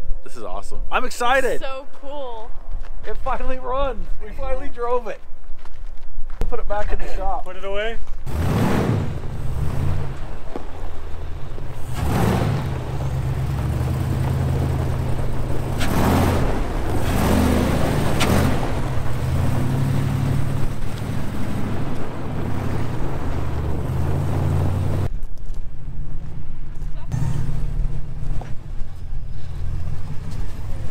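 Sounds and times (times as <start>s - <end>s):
tyres on gravel: 1.8s - 30.9s
truck engine running: 8.2s - 25.1s, 26.1s - 30.9s.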